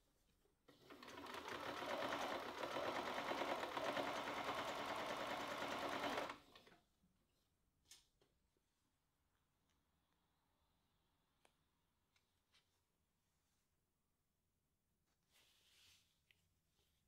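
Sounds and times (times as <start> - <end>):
electric sewing machine stitching: 0.7 - 6.7.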